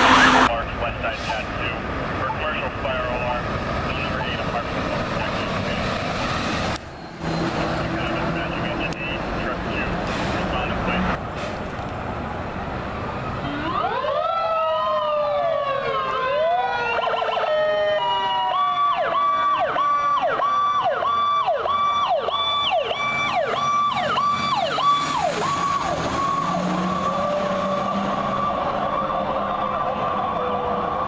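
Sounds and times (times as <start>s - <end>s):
wailing fire truck sirens: 0.0s - 31.0s
siren yelp: 13.4s - 31.0s.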